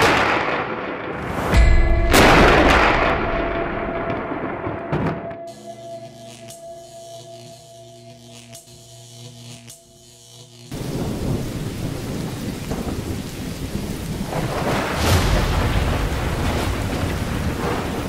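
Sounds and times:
thunder: 0.0s - 5.4s, 10.8s - 18.0s
heavy rain: 10.7s - 18.0s.

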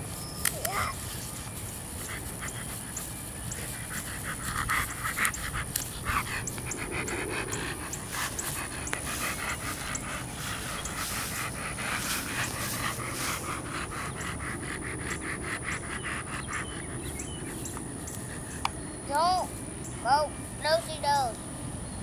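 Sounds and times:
dog panting: 0.6s - 21.3s.

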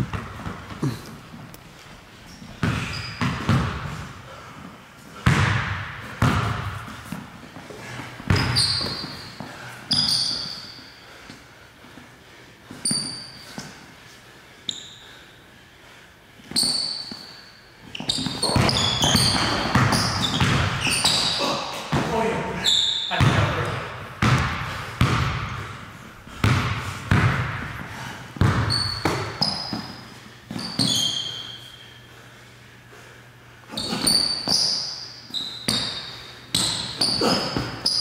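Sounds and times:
basketball bouncing on gym floor: 0.0s - 1.0s, 2.5s - 4.1s, 5.2s - 7.2s, 8.2s - 10.6s, 17.9s - 22.3s, 23.0s - 31.3s, 35.6s - 38.0s
sneaker squeaks: 2.2s - 4.1s, 7.8s - 11.0s, 12.7s - 13.8s, 14.6s - 15.2s, 16.4s - 24.5s, 28.4s - 32.1s, 33.7s - 38.0s.

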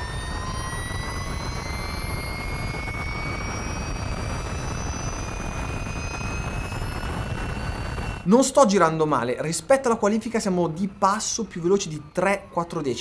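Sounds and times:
electric motorcycle motor whining: 0.0s - 8.3s
wind noise rushing: 0.0s - 8.3s.

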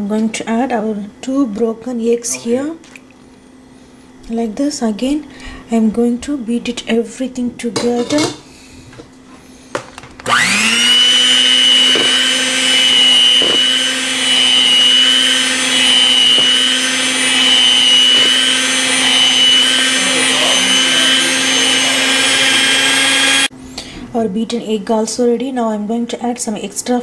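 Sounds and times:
electric hand mixer whine: 10.2s - 23.5s.

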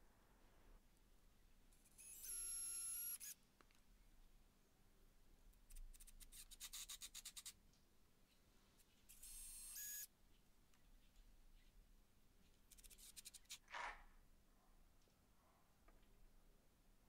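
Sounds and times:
drill motor whine: 2.0s - 3.4s, 9.2s - 10.1s.

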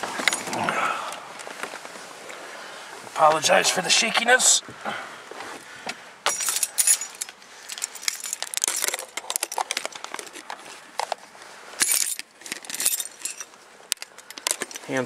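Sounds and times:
car keys jangling: 6.2s - 11.2s, 11.8s - 15.0s
rustling and handling clicks: 6.2s - 15.0s.

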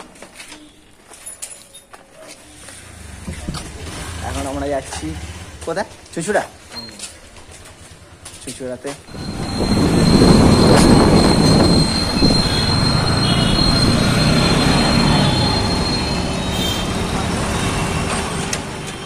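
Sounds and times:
motorcycle engine and road noise: 2.5s - 19.0s
wind rush: 9.1s - 14.2s
thin high whine: 9.1s - 16.8s.

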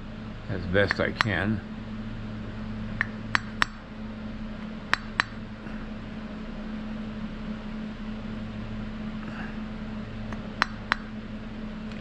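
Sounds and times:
low steady hum: 0.0s - 12.0s
hammer tapping on anvil: 0.8s - 1.4s, 3.0s - 3.8s, 4.9s - 5.4s, 10.3s - 11.2s.

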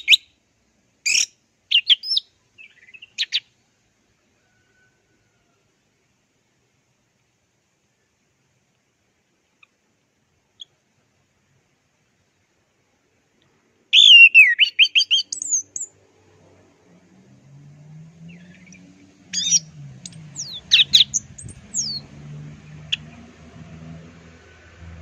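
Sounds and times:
thrush singing: 18.2s - 25.0s.

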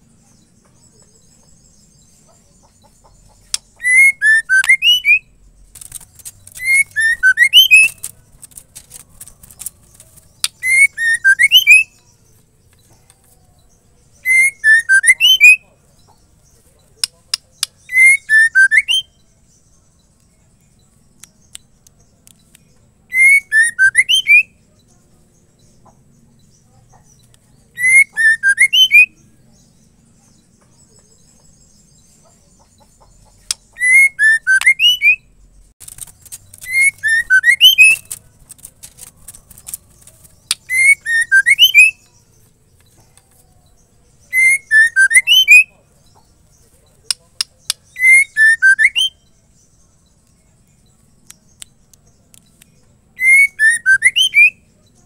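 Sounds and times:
bird whistling phrases: 3.8s - 5.3s, 6.5s - 8.1s, 10.5s - 12.0s, 14.2s - 15.6s, 17.8s - 19.2s, 23.1s - 24.6s, 27.8s - 29.2s, 33.6s - 35.2s, 36.6s - 38.2s, 40.5s - 42.0s, 44.3s - 45.7s, 47.9s - 49.2s, 53.2s - 54.6s
sharp clicks: 5.7s - 11.8s, 35.8s - 41.9s.

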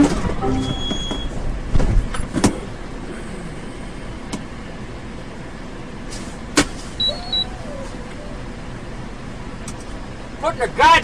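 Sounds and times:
truck road and cab noise: 0.0s - 11.0s
brief high beep: 0.4s - 1.4s.

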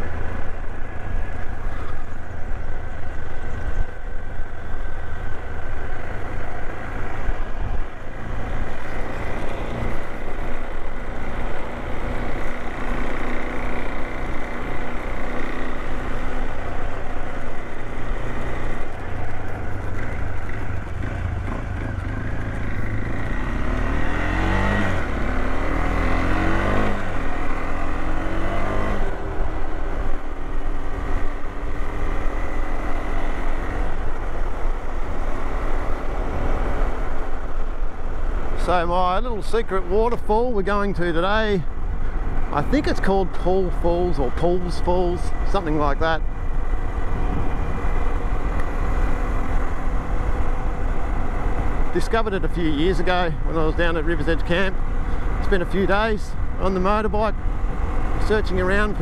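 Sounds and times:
motorcycle engine accelerating: 0.0s - 40.3s
wind and road rush: 0.0s - 59.0s.

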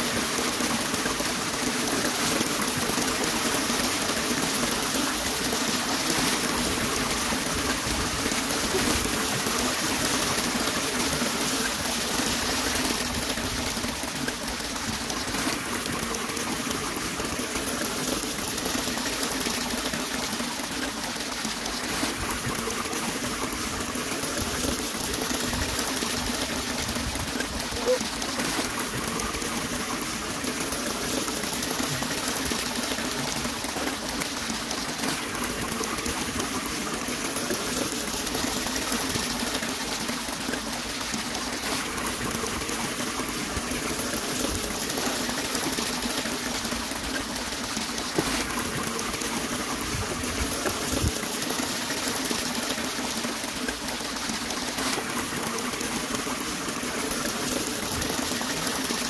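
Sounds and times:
shallow running water: 0.0s - 59.0s.

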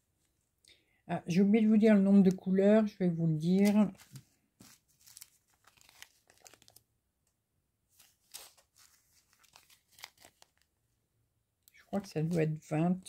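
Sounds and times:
plastic bags crinkling: 3.6s - 6.8s, 8.0s - 10.7s.

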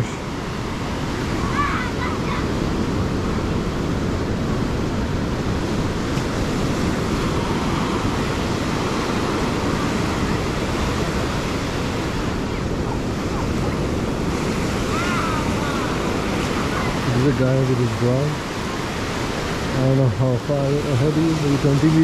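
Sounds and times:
ocean surf: 0.0s - 22.0s
wind rumbling on microphone: 0.0s - 22.0s.

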